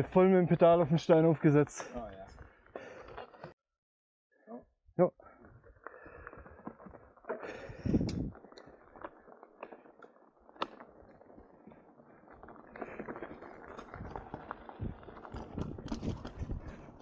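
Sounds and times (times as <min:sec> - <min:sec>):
bike tyres crunching on gravel: 0:05.3 - 0:17.0
bike clicks and rattles: 0:05.4 - 0:17.0.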